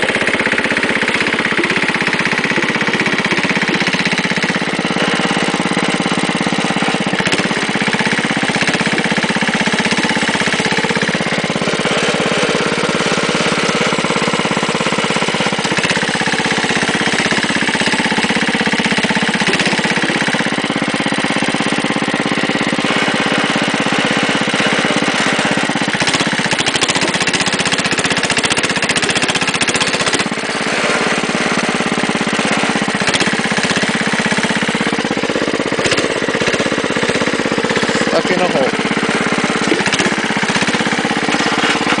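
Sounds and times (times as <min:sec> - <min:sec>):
garden tractor engine running: 0:00.0 - 0:42.0.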